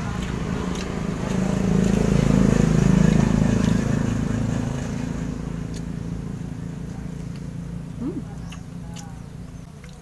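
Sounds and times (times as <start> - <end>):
vehicle engine passing: 0.0 - 10.0.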